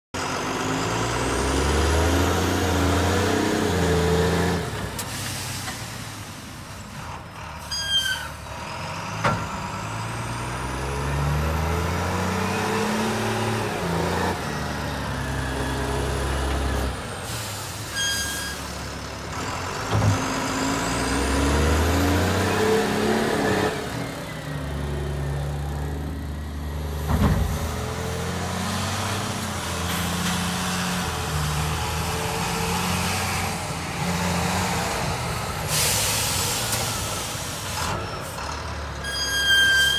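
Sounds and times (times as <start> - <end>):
diesel engine revving: 0.2 - 7.6, 8.3 - 39.0.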